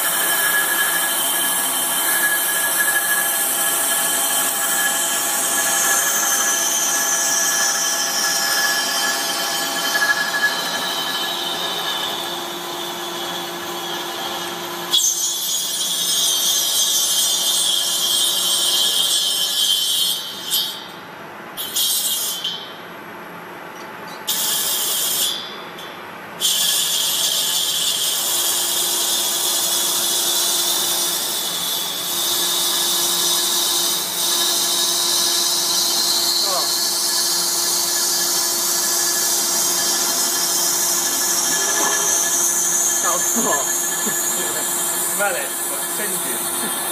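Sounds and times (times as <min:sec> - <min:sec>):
lathe machine humming: 0:00.0 - 0:14.9, 0:33.1 - 0:46.9
lathe cutting tool hiss and whine: 0:00.0 - 0:20.7, 0:26.4 - 0:46.9.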